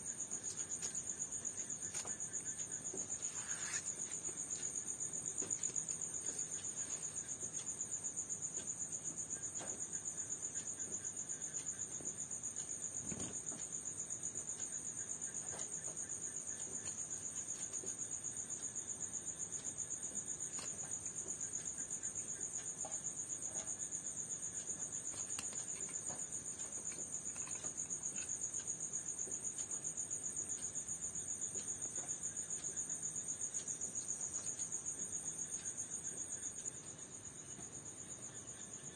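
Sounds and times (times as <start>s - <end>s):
crickets trilling: 0.0s - 38.9s
faint knocks and scrapes: 0.3s - 7.6s.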